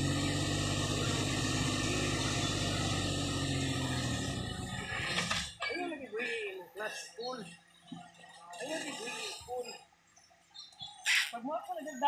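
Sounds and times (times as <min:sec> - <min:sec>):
truck engine running at low revs: 0:00.0 - 0:05.6.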